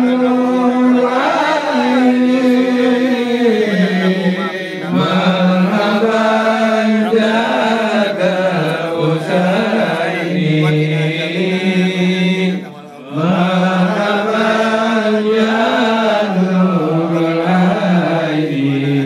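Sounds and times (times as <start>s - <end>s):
voices chanting long notes: 0.0s - 19.0s.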